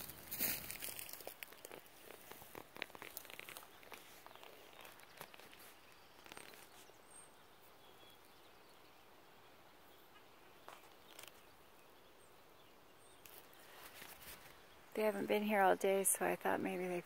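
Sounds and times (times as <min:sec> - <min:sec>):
light rustles: 0:13.3 - 0:14.6.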